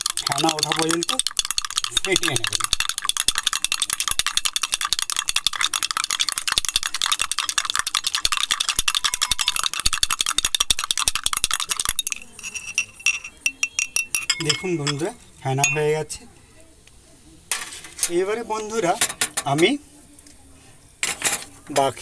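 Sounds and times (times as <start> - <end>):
metal spoon clinking in glass mug: 0.0 - 16.0.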